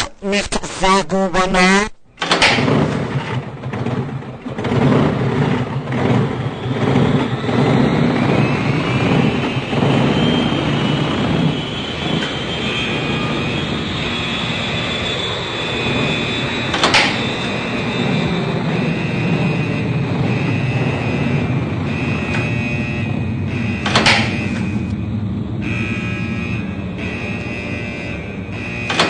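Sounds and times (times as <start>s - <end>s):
machine motor rattling: 2.2s - 10.2s
rising whine: 4.3s - 29.0s.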